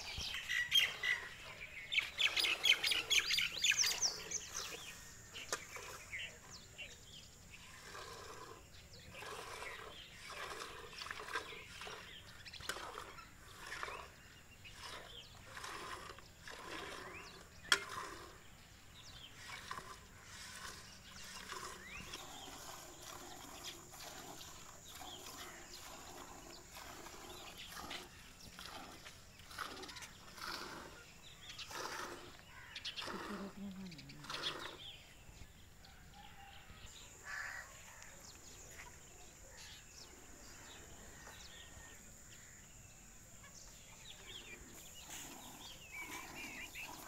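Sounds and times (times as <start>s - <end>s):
milk squirting into steel pail: 9.1s - 18.4s, 19.3s - 31.0s, 31.7s - 32.4s.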